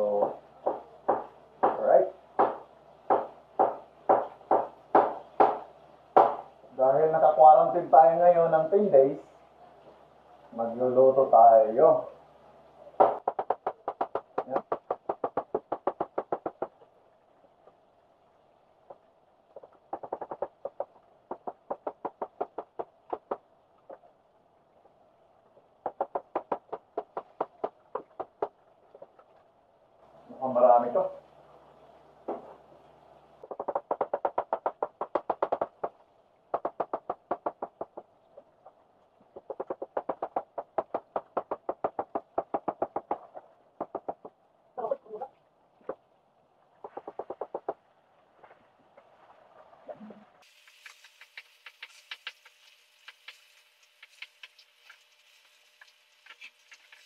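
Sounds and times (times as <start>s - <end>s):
knife chopping on cutting board: 2.4s - 5.6s.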